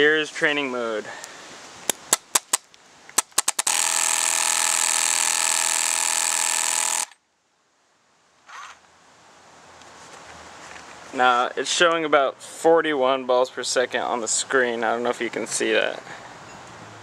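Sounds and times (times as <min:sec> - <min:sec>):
paintball marker clicking shots: 0:01.9 - 0:07.2
rapid-fire buzzing burst: 0:03.2 - 0:07.2.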